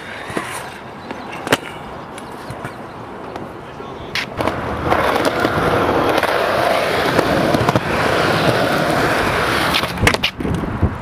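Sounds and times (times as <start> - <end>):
scooter wheels rolling on concrete: 0.0 - 11.0
scooter deck clacking on ground: 7.1 - 8.6.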